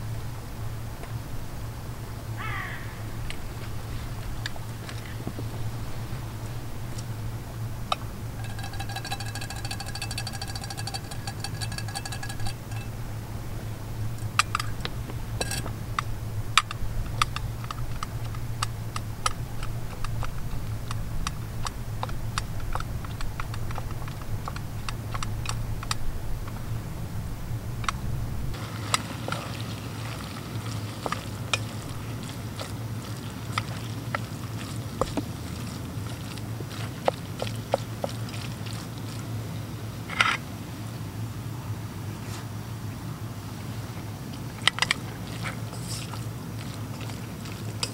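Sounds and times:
gas stove low hum: 0.0 - 30.0
utensil scraping metal pot: 7.9 - 13.1, 14.0 - 18.5.

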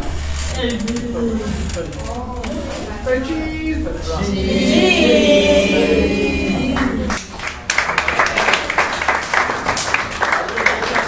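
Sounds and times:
group of voices singing: 4.1 - 7.3
clapping: 6.8 - 11.0.

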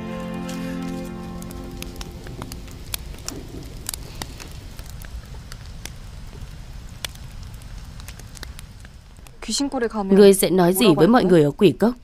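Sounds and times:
low rumble: 0.0 - 5.9
campfire crackling: 0.0 - 11.8.

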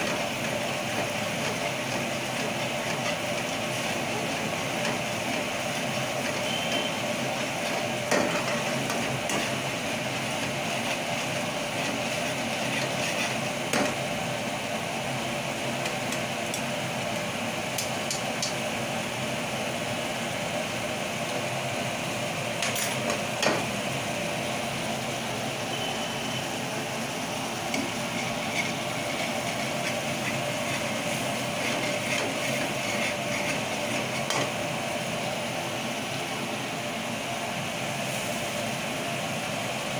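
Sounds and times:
ladle stirring thick gravy: 0.0 - 14.0, 27.7 - 34.7
kitchen background noise: 0.0 - 18.7, 20.9 - 36.4.

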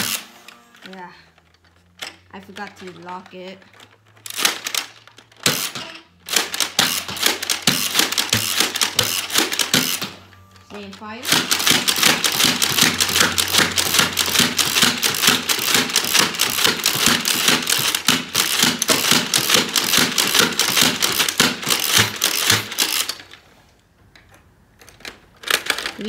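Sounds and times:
dart blaster rapid firing: 5.4 - 10.2, 11.2 - 23.1.

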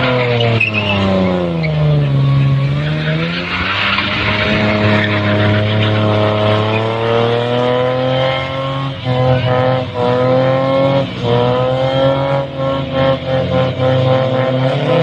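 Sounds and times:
car engine revving high: 0.0 - 15.0
spinning tyres: 0.0 - 15.0.

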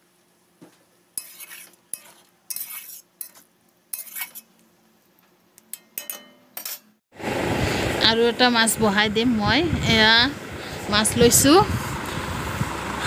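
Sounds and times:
spatula scraping a pan: 1.2 - 4.6.

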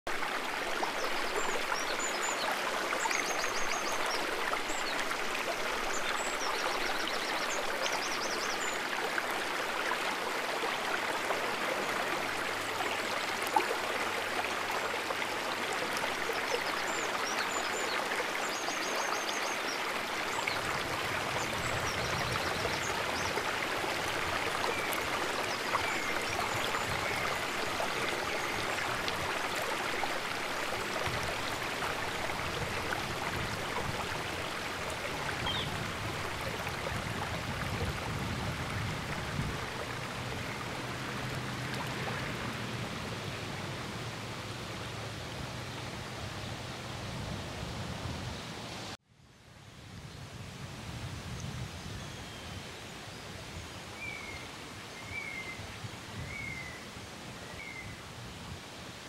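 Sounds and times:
stream water flowing: 0.1 - 49.0, 52.6 - 59.0.

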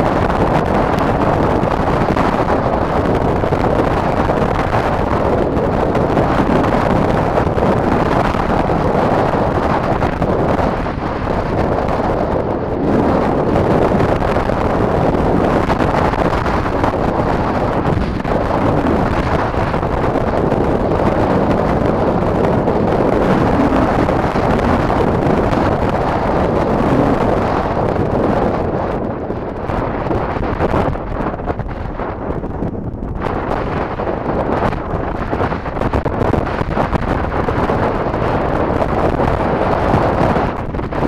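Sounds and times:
wind buffeting microphone: 0.0 - 41.0.

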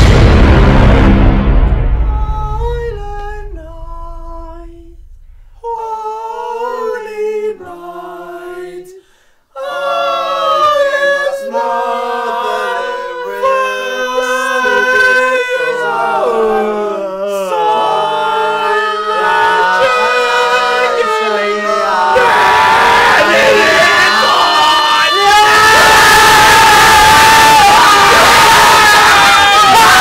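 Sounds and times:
men singing a cappella: 5.6 - 26.0.

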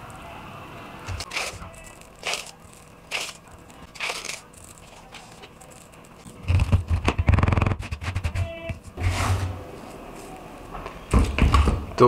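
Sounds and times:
spoon scraping gritty powder: 1.1 - 6.3.

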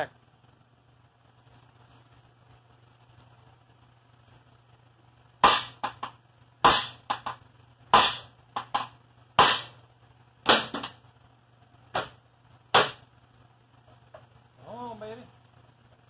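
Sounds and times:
hammer striking metal: 5.4 - 6.0, 6.6 - 7.3, 7.9 - 9.8.

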